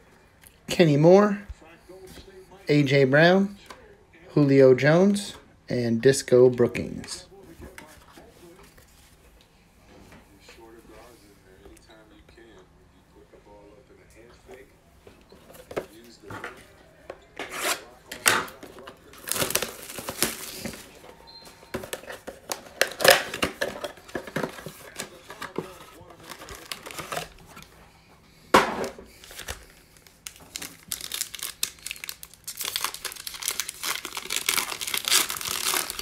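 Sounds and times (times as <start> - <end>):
foil wrappers crinkling: 18.5 - 27.7, 29.1 - 36.0
foil pack tearing open: 19.1 - 20.9, 30.2 - 36.0.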